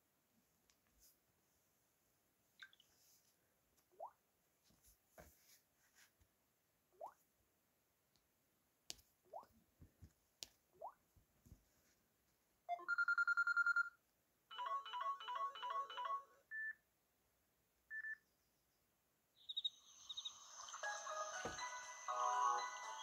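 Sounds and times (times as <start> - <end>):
birdsong ringtone: 12.7 - 13.9, 14.5 - 16.7
pulsing bell ringtone: 14.5 - 16.4.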